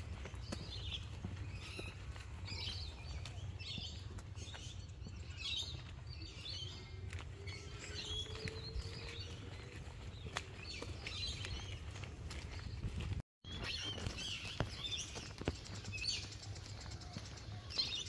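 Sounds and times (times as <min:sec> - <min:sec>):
footsteps on paved path: 0:00.0 - 0:18.0
small birds chirping: 0:00.0 - 0:18.0.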